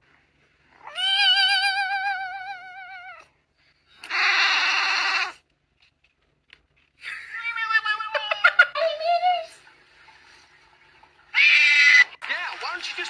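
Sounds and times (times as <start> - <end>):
cats meowing: 0.7 - 3.3, 4.0 - 5.4, 11.4 - 12.2
harsh rasping cat cry: 0.7 - 3.3, 4.0 - 5.4, 11.3 - 12.2.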